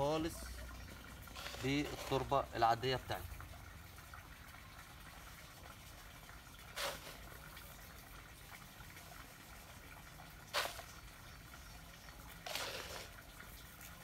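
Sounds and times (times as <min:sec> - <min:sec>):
dry soil pouring: 0:01.0 - 0:03.3, 0:06.5 - 0:08.0, 0:10.4 - 0:14.0.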